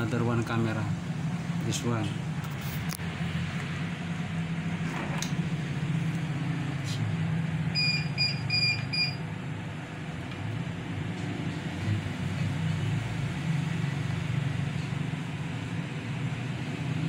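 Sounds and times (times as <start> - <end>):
high-pitched electronic beeps: 7.7 - 9.2.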